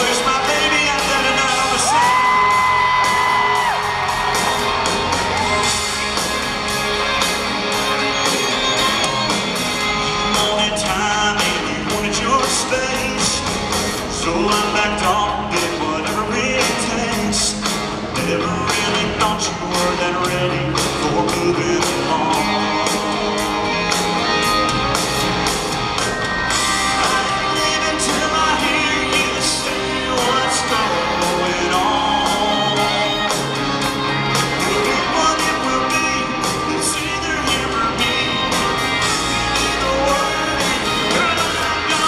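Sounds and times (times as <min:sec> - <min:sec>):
man singing into a microphone: 0:00.0 - 0:03.8, 0:10.2 - 0:23.1, 0:26.8 - 0:33.6, 0:34.4 - 0:42.0
live country band: 0:00.0 - 0:42.0.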